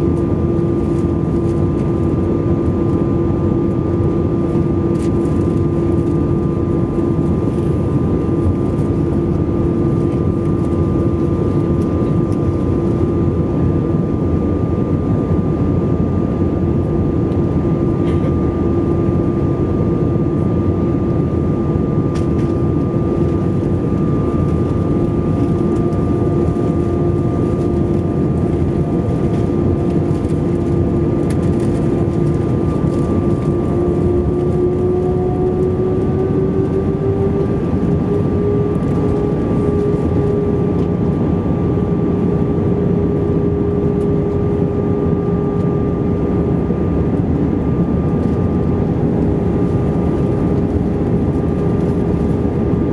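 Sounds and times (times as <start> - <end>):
airflow rush in cabin: 0.0 - 52.9
jet engine drone: 0.0 - 52.9.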